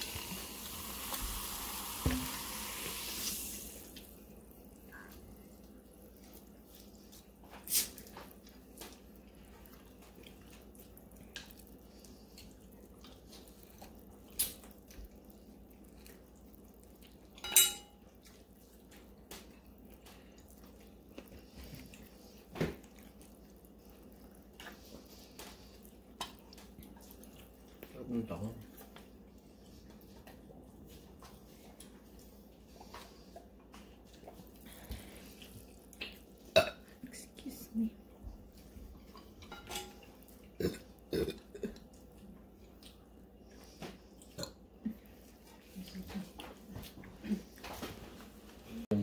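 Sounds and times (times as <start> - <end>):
wet sucking and smacking: 5.6 - 17.4.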